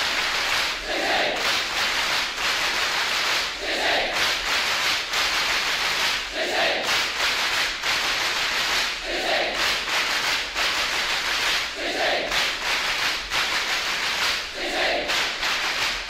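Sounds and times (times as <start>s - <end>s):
crowd chanting in unison: 0.0s - 1.8s, 3.4s - 4.5s, 6.0s - 7.2s, 8.8s - 9.9s, 11.6s - 12.6s, 14.3s - 15.8s.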